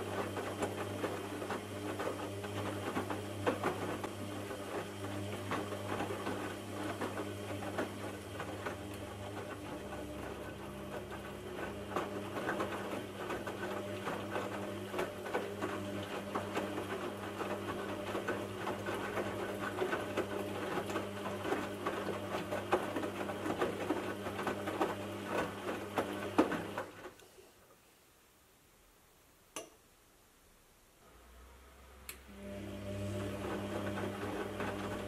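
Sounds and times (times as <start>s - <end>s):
click: 29.5s - 29.8s.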